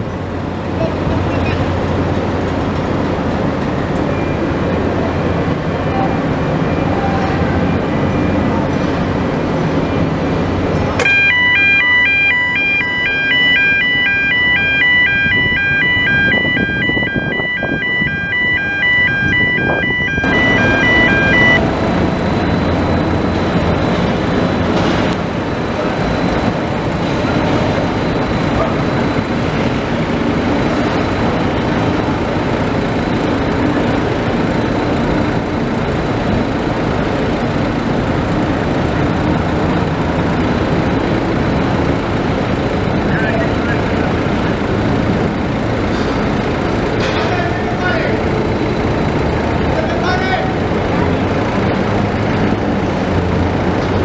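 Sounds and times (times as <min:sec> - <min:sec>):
heavy machinery running: 0:00.0 - 0:54.0
two-tone warning alarm beeps: 0:11.0 - 0:22.7.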